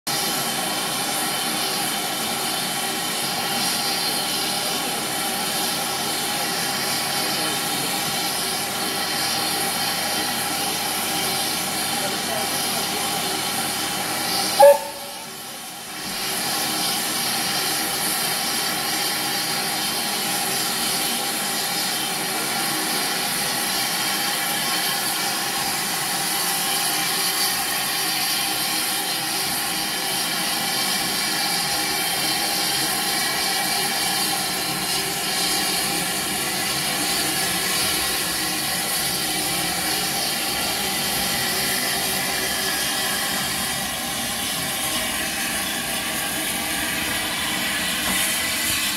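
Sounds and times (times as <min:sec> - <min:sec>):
steam hissing from locomotive: 0:00.1 - 0:48.9
loud blip: 0:14.6 - 0:15.3.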